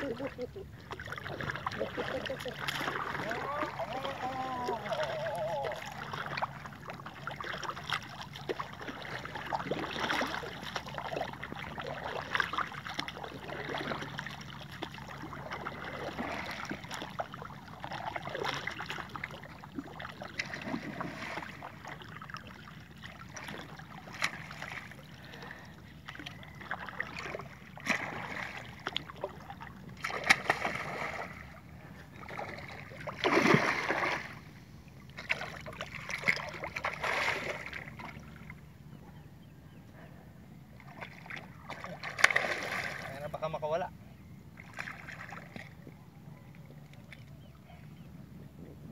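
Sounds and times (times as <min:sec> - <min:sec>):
water around boat: 0:00.0 - 0:48.9
wind: 0:00.0 - 0:48.9
fish striking water surface splash: 0:30.1 - 0:31.2.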